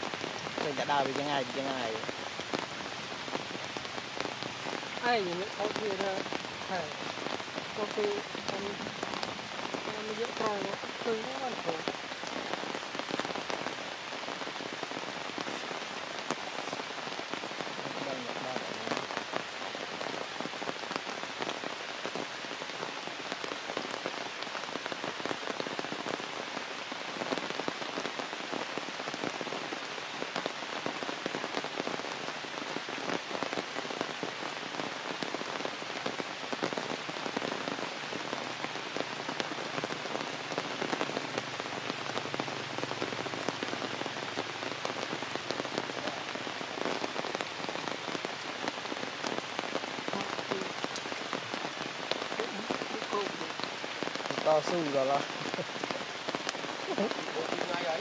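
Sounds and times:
rain falling through foliage: 0:00.0 - 0:58.0
drops ticking on leaves: 0:50.1 - 0:58.0.

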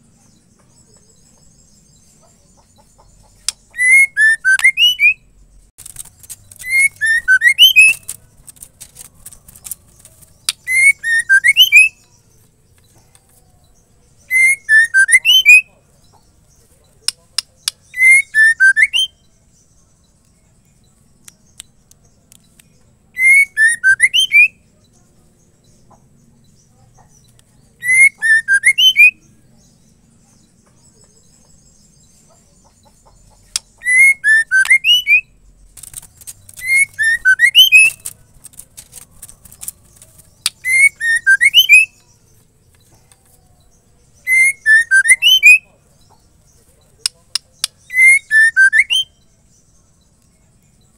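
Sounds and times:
bird whistling and chattering: 0:03.4 - 0:05.2, 0:06.2 - 0:08.2, 0:08.8 - 0:12.0, 0:14.3 - 0:15.7, 0:17.4 - 0:19.2, 0:23.2 - 0:24.6, 0:27.8 - 0:29.2, 0:33.5 - 0:38.2, 0:38.8 - 0:42.0, 0:44.2 - 0:45.7, 0:47.3 - 0:49.2
dry clicks: 0:05.8 - 0:10.8, 0:35.7 - 0:40.7.

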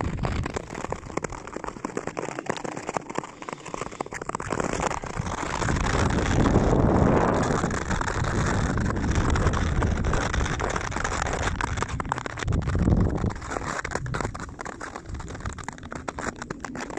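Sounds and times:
skate blades scraping on ice: 0:00.0 - 0:16.9
wind rushing over microphone: 0:04.9 - 0:15.6.

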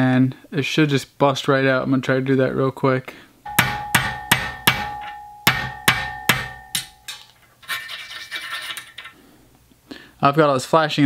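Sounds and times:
hammer striking steel punch: 0:03.5 - 0:07.3
metallic ring: 0:03.5 - 0:07.5
scratchy rasping: 0:07.6 - 0:09.2.

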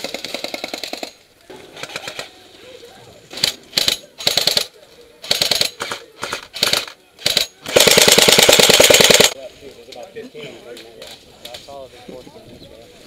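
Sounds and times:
airsoft rifles firing: 0:00.0 - 0:02.3, 0:03.3 - 0:09.4.

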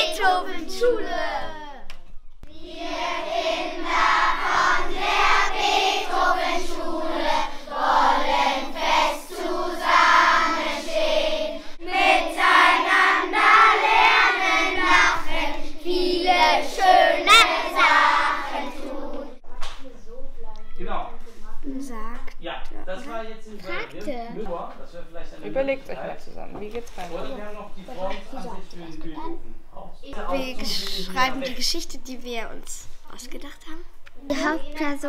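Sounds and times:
children singing in unison: 0:02.5 - 0:19.4.

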